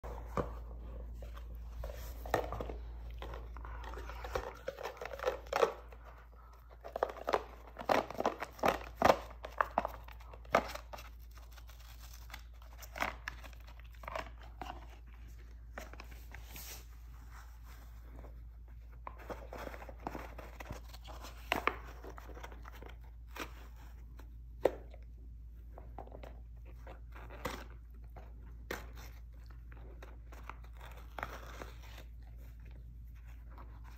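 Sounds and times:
dog chewing cardboard tube: 0.0s - 16.4s.

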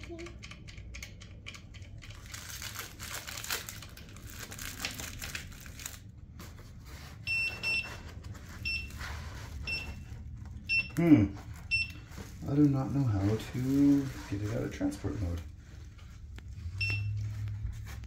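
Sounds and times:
plastic wrapping crinkling: 2.1s - 7.0s, 11.4s - 18.0s.

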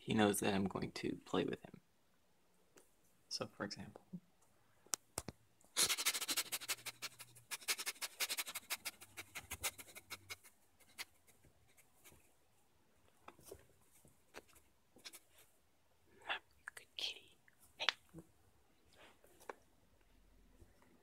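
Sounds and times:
faint rubs and clicks: 5.2s - 12.4s, 13.0s - 15.6s
man sniffing rapidly: 5.8s - 11.2s.

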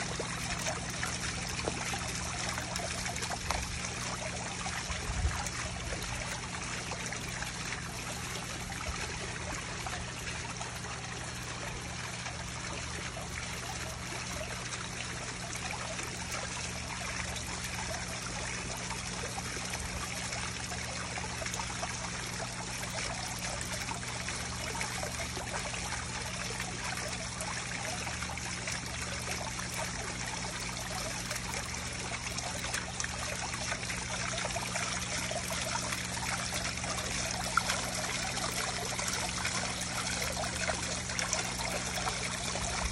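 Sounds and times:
fountain jet splashing: 0.0s - 42.9s
low steady hum: 0.0s - 42.9s
water splashing into pond: 0.0s - 42.9s.

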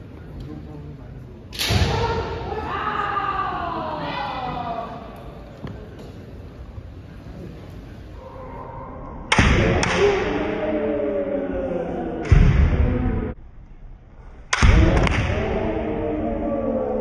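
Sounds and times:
long drawn-out kiai shouts: 14.6s - 17.0s.

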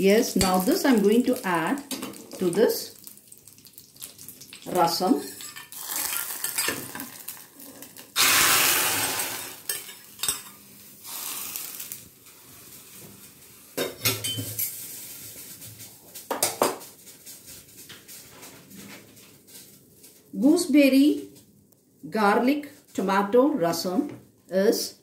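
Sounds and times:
hot oil sizzling: 0.0s - 18.5s.

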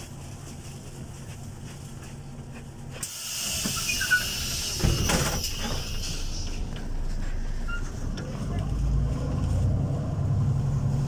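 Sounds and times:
bus engine hum: 0.0s - 11.0s
bus air system hiss: 3.0s - 7.7s
heavy clunk with rattle: 4.7s - 5.9s.

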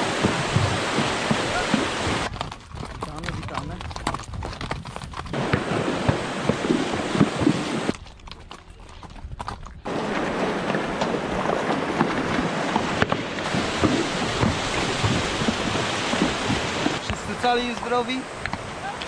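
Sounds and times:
river rushing: 0.0s - 2.3s, 5.4s - 7.9s, 9.9s - 19.0s
hooves splashing over stones: 0.0s - 19.0s.

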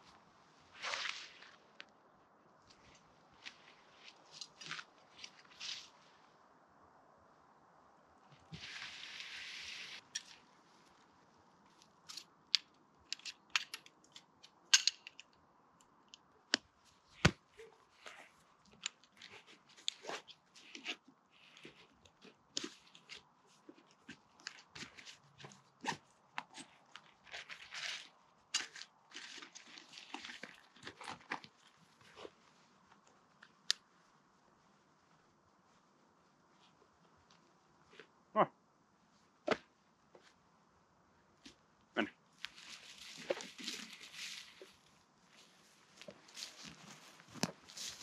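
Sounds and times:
tent fabric rustling: 0.0s - 1.8s, 2.7s - 6.3s, 8.4s - 11.8s, 42.4s - 48.0s.

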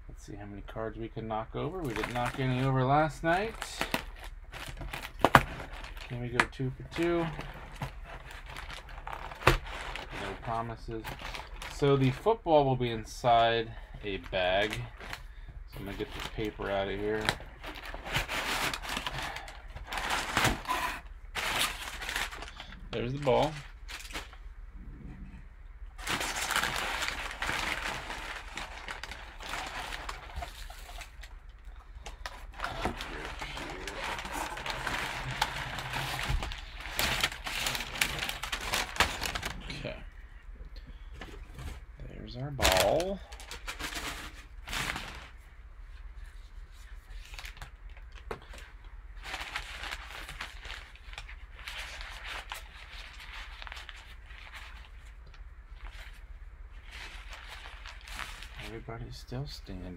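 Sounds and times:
low steady hum: 0.0s - 59.9s
nylon bag rustling: 1.8s - 12.3s, 15.8s - 24.4s, 26.0s - 31.3s, 32.4s - 39.7s, 56.8s - 58.8s
packing paper crinkling: 1.8s - 12.4s, 13.3s - 24.4s, 26.0s - 40.0s, 42.5s - 46.1s, 47.0s - 58.8s.

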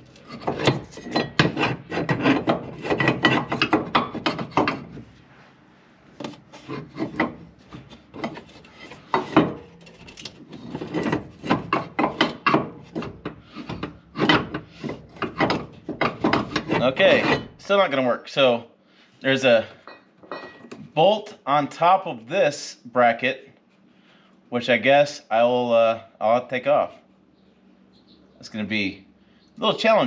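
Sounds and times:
metal part scraping and knocking: 0.0s - 5.1s, 6.2s - 17.6s.

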